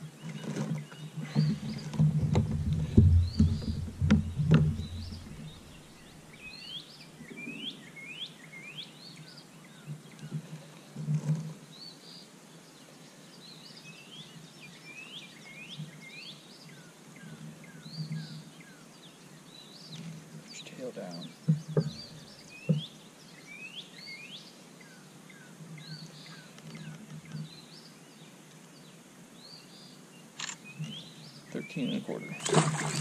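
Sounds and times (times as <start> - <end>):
birds chirping: 0.0 - 10.4, 13.0 - 33.0
soft low thumps: 1.4 - 6.1.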